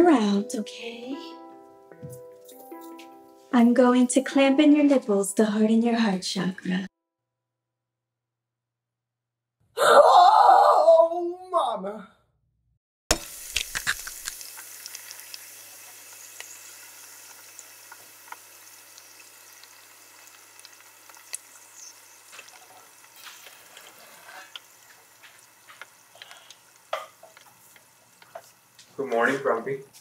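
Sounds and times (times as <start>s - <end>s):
eggs sizzling in a pan: 13.1s - 30.0s.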